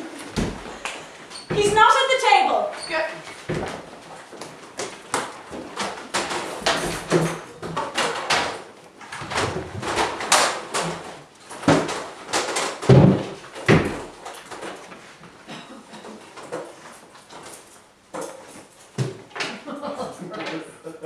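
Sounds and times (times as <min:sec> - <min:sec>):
folding chairs knocking and scraping: 0:00.0 - 0:20.6
heavy thumps: 0:00.1 - 0:02.1, 0:12.8 - 0:14.1.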